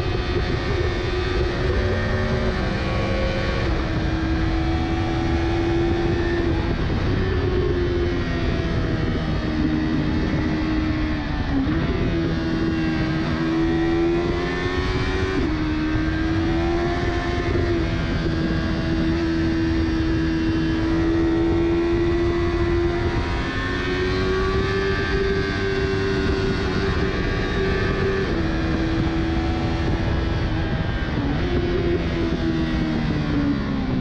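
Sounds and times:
motorcycle engine at high revs: 0:00.0 - 0:34.0
wind and road noise: 0:00.0 - 0:34.0.

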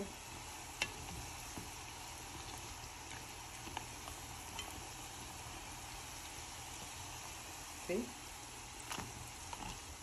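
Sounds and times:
food deep-frying in oil: 0:00.0 - 0:10.0
tongs clicking against pot: 0:00.7 - 0:05.3.

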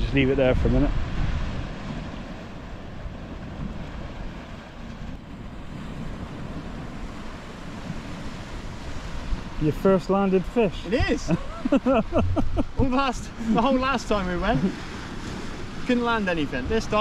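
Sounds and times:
wind buffeting microphone: 0:00.0 - 0:17.0
sea waves breaking on rocks: 0:00.9 - 0:17.0.

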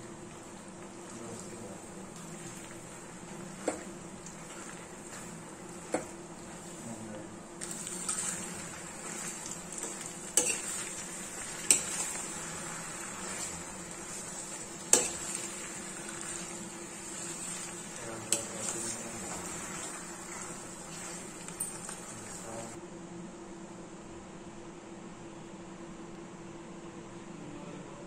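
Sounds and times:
faint frying sizzle: 0:00.0 - 0:22.8
metal spatula scraping pasta: 0:07.6 - 0:22.4.

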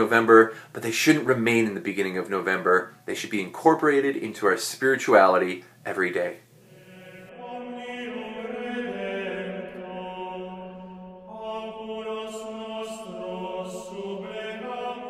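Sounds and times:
voices singing slow chant: 0:06.6 - 0:15.0.

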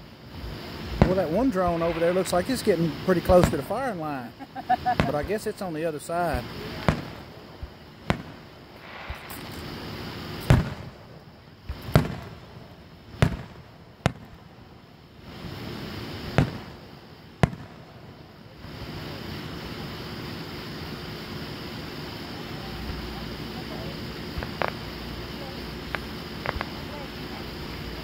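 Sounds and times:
steady wash of noise: 0:00.0 - 0:12.8
firework shells booming: 0:00.4 - 0:18.8, 0:24.2 - 0:27.8.

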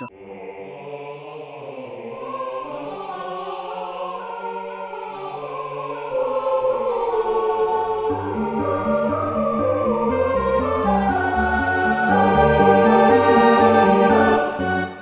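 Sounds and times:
sustained music chords: 0:08.0 - 0:15.0.

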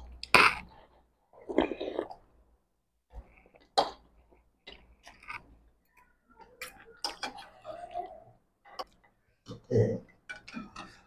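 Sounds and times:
slurping and chewing: 0:00.0 - 0:02.4, 0:03.1 - 0:05.7
cutlery clinking against bowls: 0:10.1 - 0:11.0.

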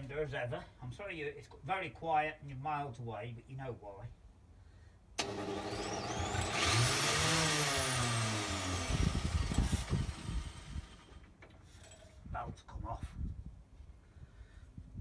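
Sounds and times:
angle grinder starter whine: 0:05.2 - 0:11.4
low thumping of drive belt: 0:05.2 - 0:11.6.

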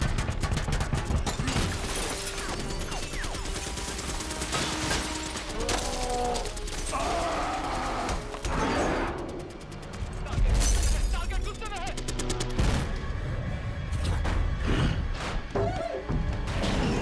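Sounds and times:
rapid cannon fire: 0:00.0 - 0:13.4.

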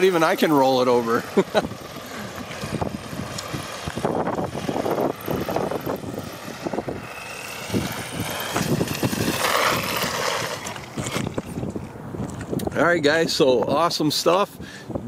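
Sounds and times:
rc truck motor whining: 0:00.0 - 0:12.7
tyre noise on gritty pavement: 0:00.0 - 0:14.4.

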